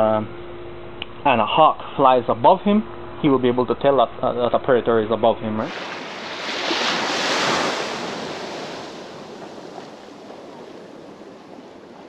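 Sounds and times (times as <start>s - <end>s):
surf: 5.6s - 12.0s
rushing wind: 5.7s - 12.0s.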